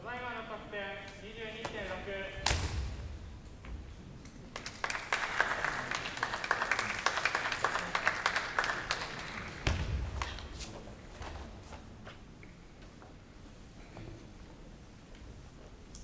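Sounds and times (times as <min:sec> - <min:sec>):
spectators clapping: 0:04.5 - 0:10.5.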